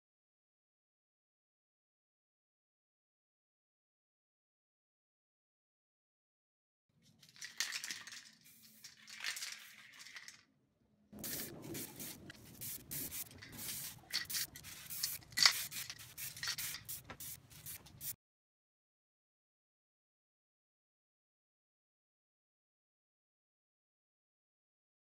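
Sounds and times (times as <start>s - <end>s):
aerosol can spraying: 7.5s - 10.3s, 11.2s - 18.2s.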